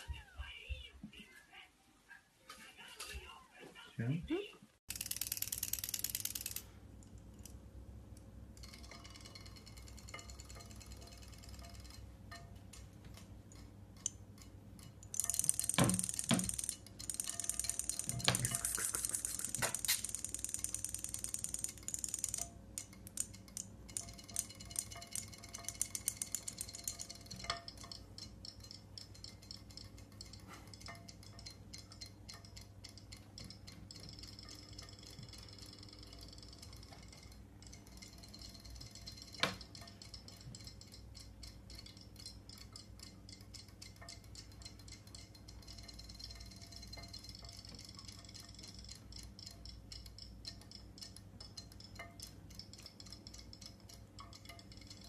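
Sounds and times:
toy motor rapid clicking: 4.9s - 6.7s, 8.6s - 12.0s, 14.8s - 55.0s.

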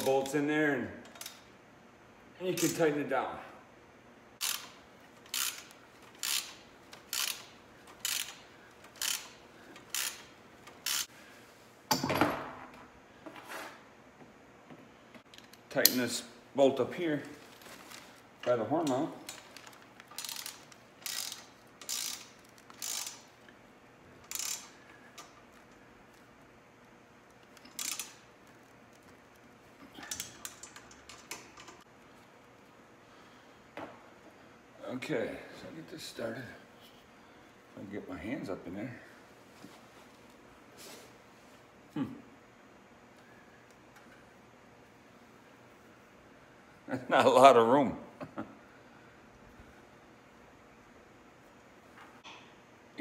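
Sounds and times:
hand ratchet clicking: 4.4s - 11.1s, 18.8s - 23.4s, 24.2s - 25.7s, 27.4s - 29.0s, 30.0s - 31.8s.

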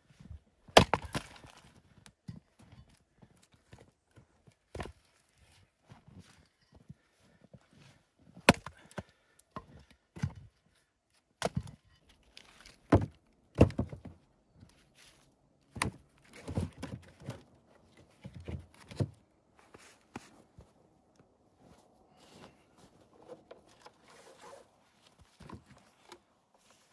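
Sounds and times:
firewood logs knocking together: 0.6s - 2.8s, 8.4s - 10.5s, 11.4s - 14.2s, 15.7s - 19.2s
handling rustle: 14.1s - 26.9s.

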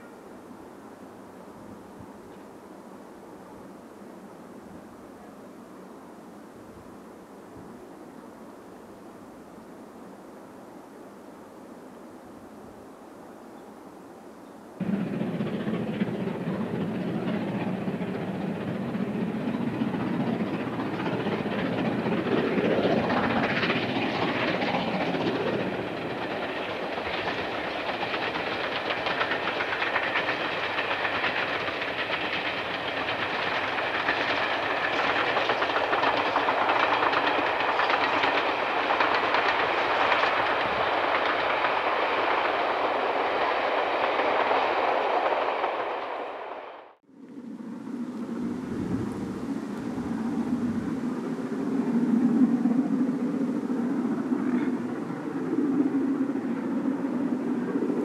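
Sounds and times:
steam locomotive exhaust: 14.8s - 46.9s
train wheels on rails: 14.8s - 47.0s, 47.9s - 58.0s.

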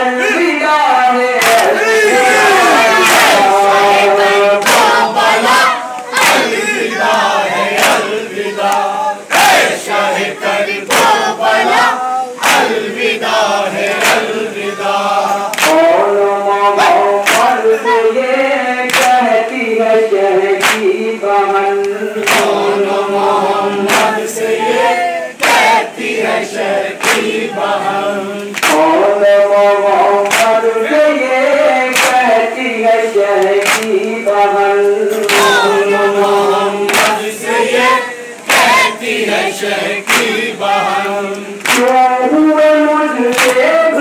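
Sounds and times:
men chanting in unison: 0.0s - 44.0s
chest-beating slaps: 1.4s - 1.7s, 15.5s - 15.8s, 17.2s - 17.6s, 20.6s - 20.9s, 22.2s - 22.6s, 23.9s - 24.2s, 28.5s - 28.9s, 30.2s - 30.6s, 31.9s - 32.2s, 33.4s - 33.9s, 36.9s - 37.2s, 40.0s - 40.4s, 41.3s - 42.0s, 43.3s - 43.6s.

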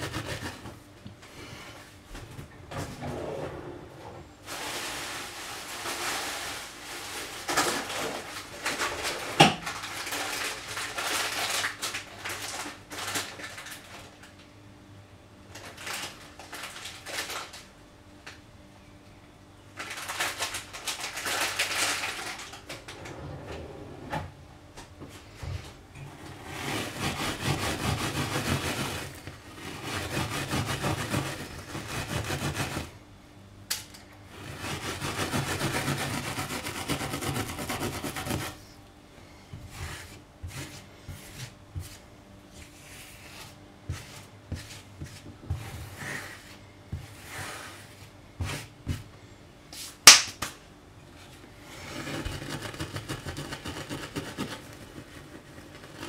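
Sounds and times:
steel pad scrubbing a hob: 26.4s - 32.9s, 34.3s - 38.6s.

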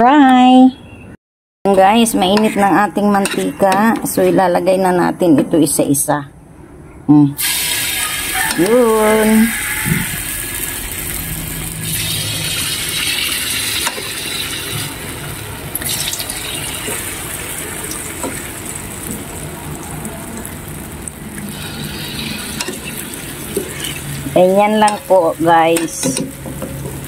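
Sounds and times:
food deep-frying in hot oil: 7.4s - 27.0s.

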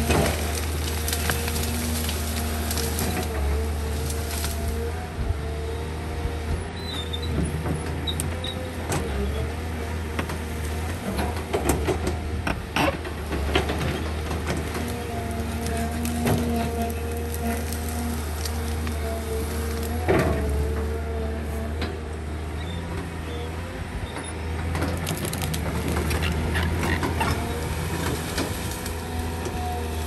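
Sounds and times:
branches cracking and snapping: 0.0s - 4.9s, 13.1s - 21.8s, 24.5s - 30.0s
excavator engine droning: 0.0s - 30.0s.

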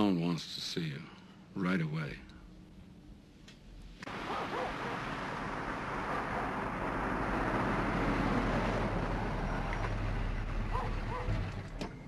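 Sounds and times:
car engine and tyre noise: 4.0s - 12.0s.

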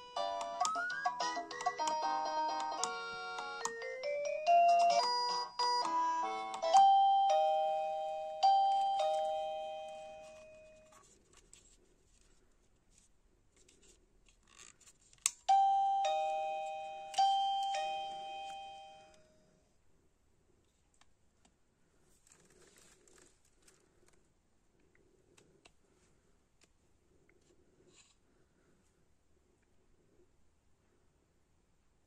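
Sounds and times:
two-tone ding-dong chime: 15.5s - 19.2s.

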